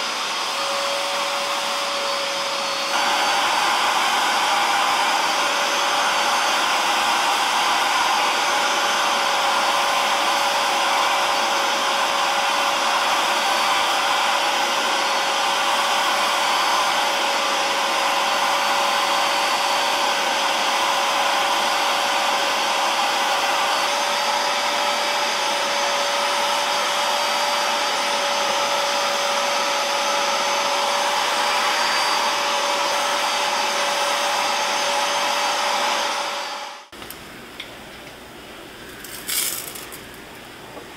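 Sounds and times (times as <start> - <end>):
cleaning machine motor whine: 0.0 - 36.9.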